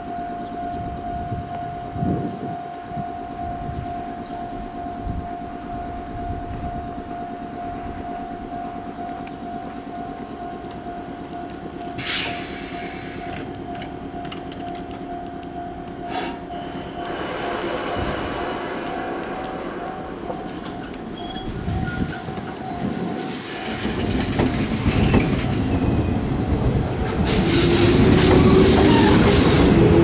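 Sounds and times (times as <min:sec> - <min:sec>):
electric train whine and rumble: 0:00.0 - 0:30.0
air hissing burst: 0:12.0 - 0:13.4, 0:16.1 - 0:16.4.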